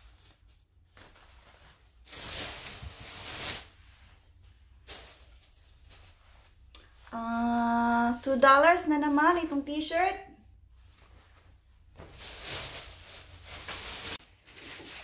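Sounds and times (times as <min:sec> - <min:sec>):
clothing rustling: 0:00.0 - 0:07.0, 0:10.6 - 0:15.0.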